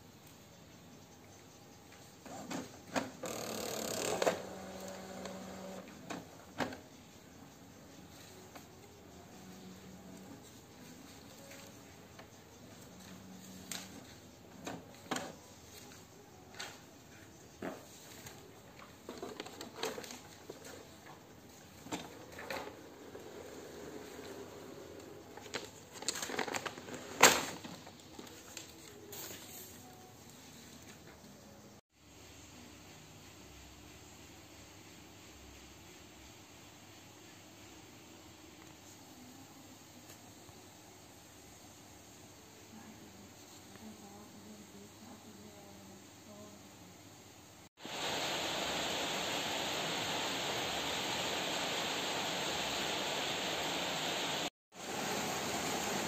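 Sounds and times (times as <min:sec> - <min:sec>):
printer motor whirr and hum: 0:03.0 - 0:06.8
paper rustling: 0:25.4 - 0:29.8.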